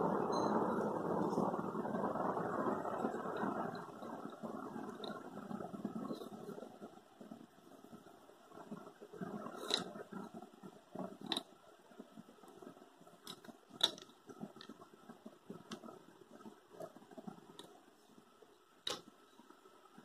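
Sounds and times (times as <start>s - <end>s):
small clicks and taps: 12.4s - 17.8s, 18.8s - 19.6s.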